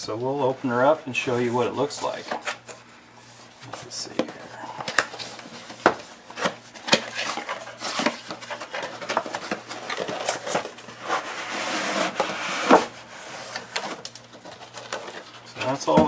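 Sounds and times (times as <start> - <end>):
cardboard rustling and scraping: 1.1 - 16.0
foam packing sliding: 9.0 - 14.1.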